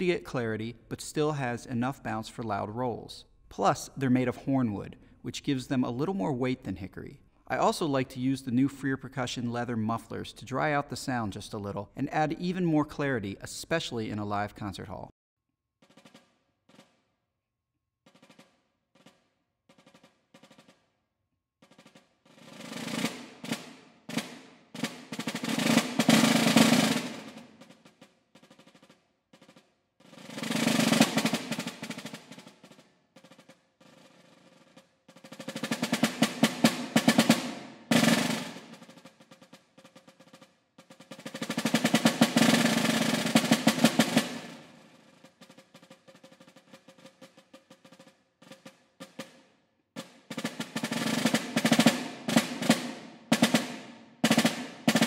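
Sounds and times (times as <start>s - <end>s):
snare drum rolls: 0.0s - 6.9s, 15.8s - 17.2s, 18.1s - 21.0s, 21.6s - 55.0s
soft snare drum strokes: 18.1s - 21.0s, 21.6s - 55.0s.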